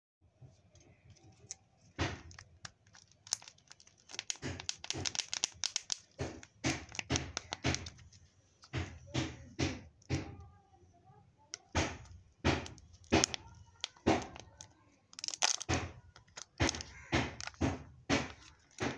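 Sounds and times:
plastic snaps: 1.4s - 10.5s, 11.5s - 18.9s
wrapper crinkling and tearing: 2.2s - 8.2s, 12.6s - 18.9s.

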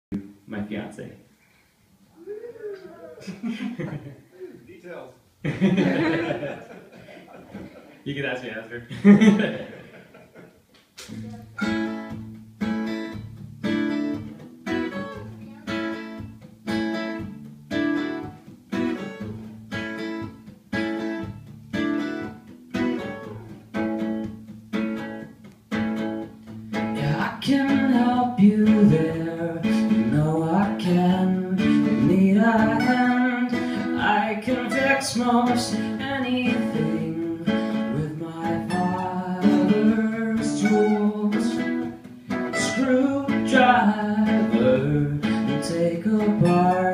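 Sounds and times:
acoustic guitars strumming: 5.5s - 7.9s, 11.1s - 46.9s
man singing: 27.0s - 41.9s, 42.6s - 46.9s.

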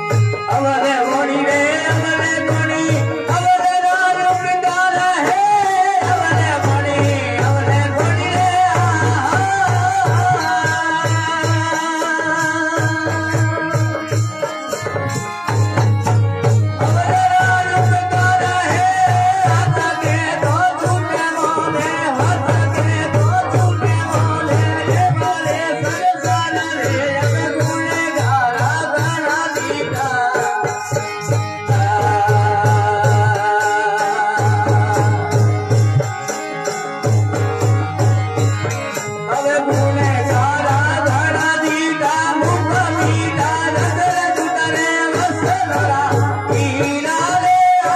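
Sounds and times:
dholak drum strokes: 0.0s - 47.9s
harmonium holding notes: 0.0s - 47.9s.

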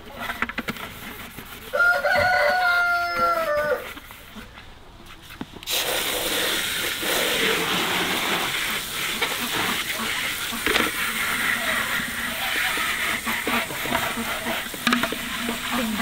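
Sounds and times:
hose spray hissing: 5.6s - 16.0s
plastic parts knocking: 14.7s - 15.7s.

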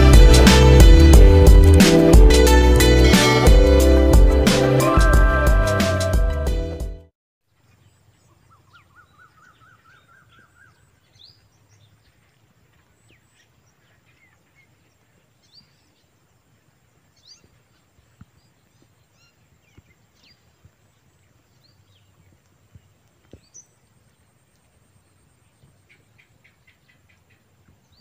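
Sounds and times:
bird chirps: 7.5s - 16.2s
bird trill: 7.7s - 12.2s.

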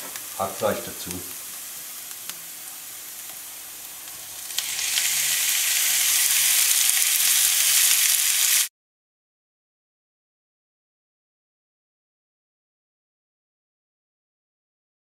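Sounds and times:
food sizzling in a pan: 0.0s - 8.7s.

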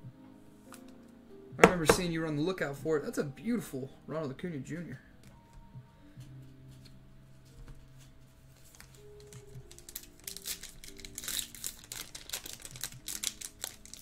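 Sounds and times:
faint background music: 0.0s - 14.0s
foil wrapper tearing and crinkling: 8.6s - 14.0s.

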